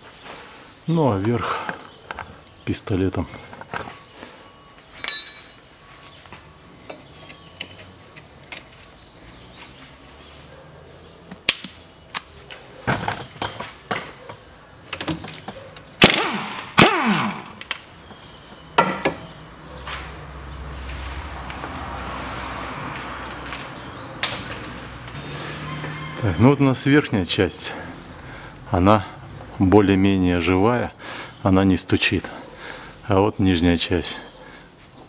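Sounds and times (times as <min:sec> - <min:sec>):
spanner clinking on metal: 0:05.0 - 0:05.6
impact gun bursts: 0:16.0 - 0:17.6.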